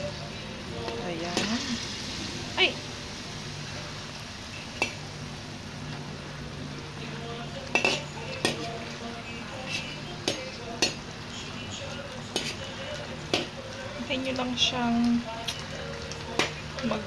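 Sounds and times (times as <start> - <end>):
sauce sizzling: 0.0 - 17.0
spatula clinking against a wok: 4.8 - 5.0, 7.7 - 8.8, 9.6 - 11.0.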